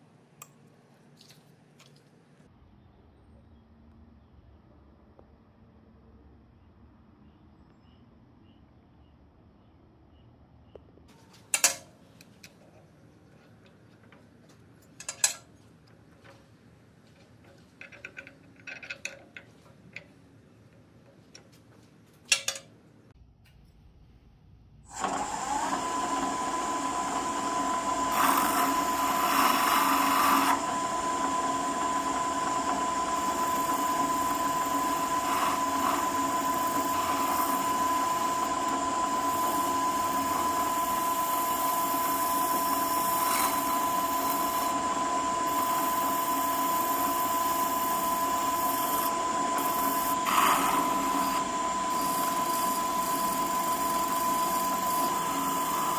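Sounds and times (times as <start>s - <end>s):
drill press whine: 24.9s - 55.9s.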